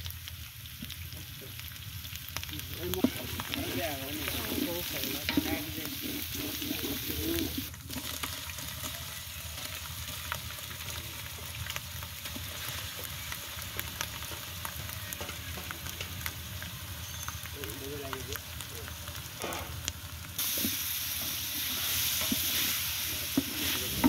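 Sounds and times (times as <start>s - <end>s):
spices frying in oil: 0.0s - 24.0s
bamboo stick stirring pot: 2.4s - 10.5s, 20.4s - 24.0s.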